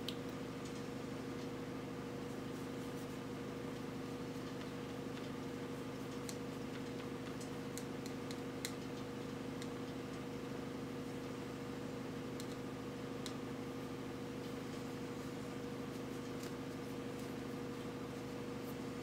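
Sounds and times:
faint small clicks: 0.0s - 1.5s, 12.4s - 12.6s
low room hum: 0.0s - 19.0s.

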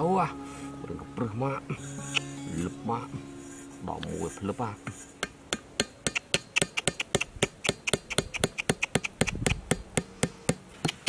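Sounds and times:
hatchet tapping stakes into dirt: 4.9s - 11.0s.

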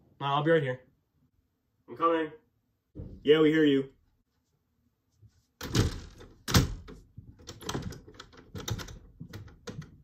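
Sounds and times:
door rattling with clicks and knocks: 5.6s - 10.0s
wooden door thudding: 5.6s - 10.0s.

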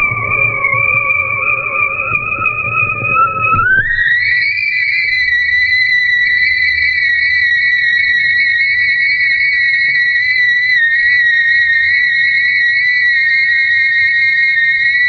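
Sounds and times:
kite line humming in wind: 0.0s - 4.2s.

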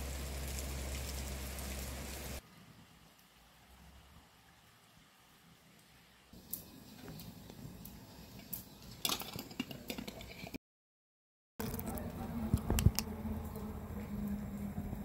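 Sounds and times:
gas stove hissing: 0.0s - 2.4s, 6.4s - 9.6s.

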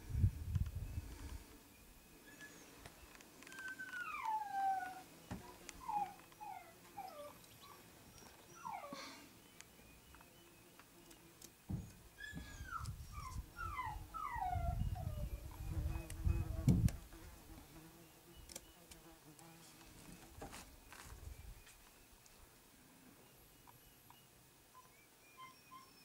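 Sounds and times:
animal whining: 3.4s - 9.2s, 11.8s - 16.6s.

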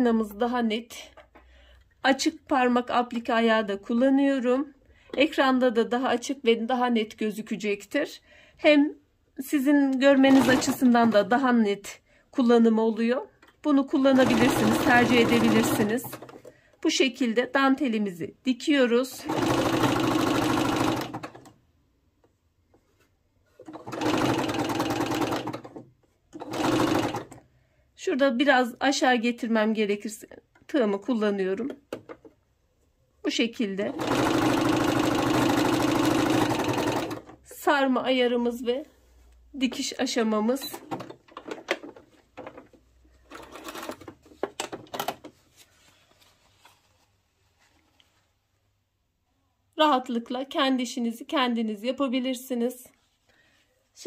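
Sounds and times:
sewing machine stitching: 10.2s - 11.3s, 14.1s - 16.5s, 19.1s - 21.5s, 23.6s - 27.4s, 33.9s - 37.4s, 43.2s - 45.2s.

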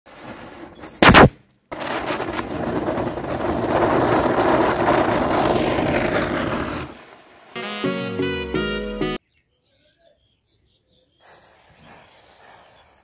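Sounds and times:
firework hissing and crackling: 0.3s - 7.6s, 11.2s - 13.0s
firecracker bang: 1.0s - 7.0s.

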